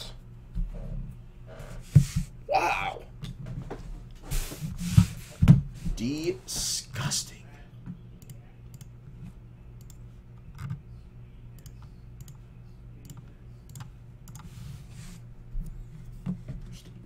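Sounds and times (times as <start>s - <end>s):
low electrical hum: 0.0s - 17.0s
computer mouse clicking: 9.8s - 10.8s, 11.6s - 12.4s, 13.0s - 14.5s.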